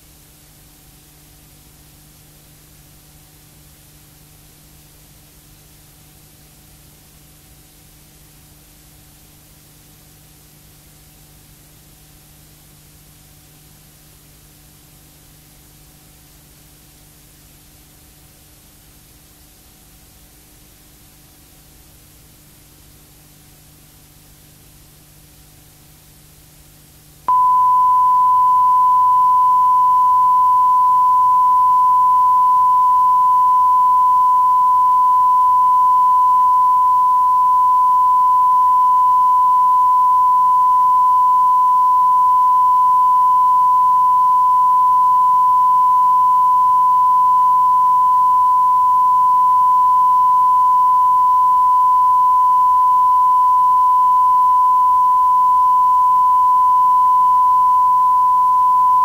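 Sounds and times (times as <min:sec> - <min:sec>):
steady pure tone: 0:27.3 - 0:59.0.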